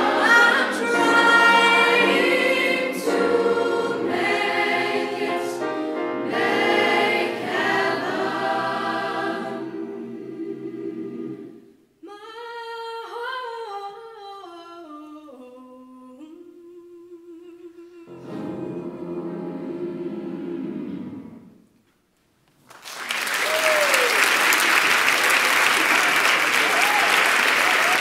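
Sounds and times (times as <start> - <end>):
youth choir singing: 0.0 - 11.8, 18.1 - 21.5.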